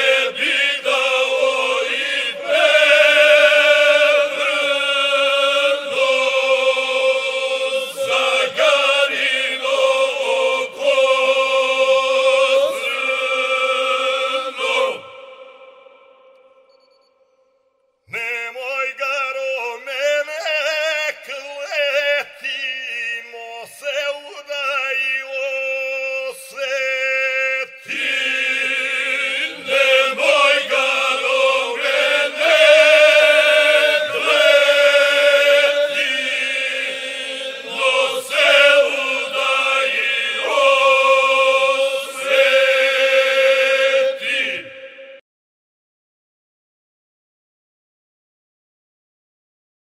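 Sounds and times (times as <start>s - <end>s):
group of people singing: 0.0s - 16.8s, 26.3s - 45.2s.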